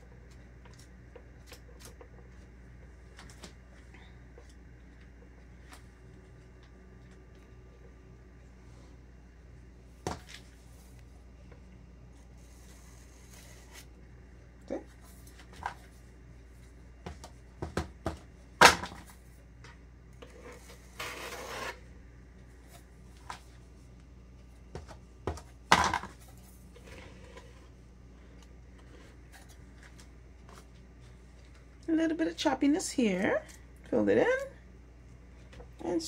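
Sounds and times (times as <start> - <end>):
spatula scrape: 20.2 - 21.8.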